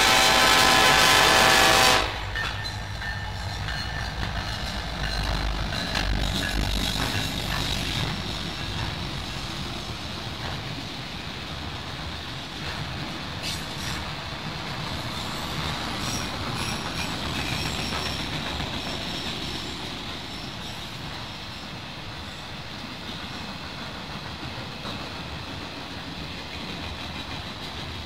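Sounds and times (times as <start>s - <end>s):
train cars rumbling and rattling: 0.0s - 28.0s
faint high wheel squeal: 2.3s - 10.0s, 13.4s - 14.2s, 14.8s - 22.6s.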